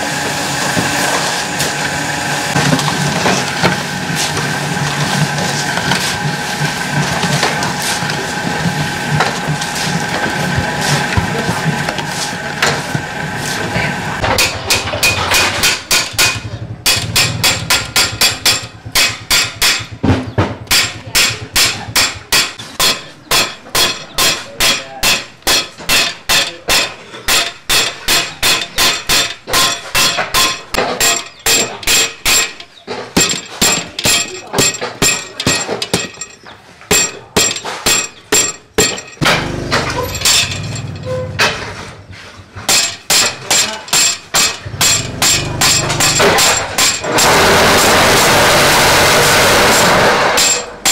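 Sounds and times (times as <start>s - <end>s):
mixing machine running: 0.0s - 20.0s, 39.2s - 42.4s, 44.5s - 50.9s
hammer pounding steel tube: 2.5s - 42.0s, 42.6s - 50.9s.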